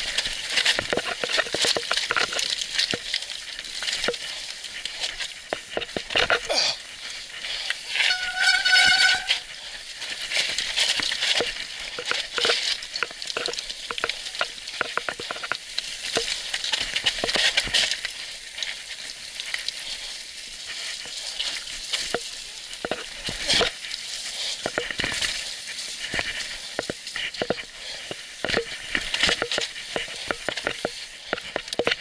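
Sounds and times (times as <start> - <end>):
bike rattling over bumps: 0.0 - 32.0
high-pitched squeal: 8.0 - 9.5.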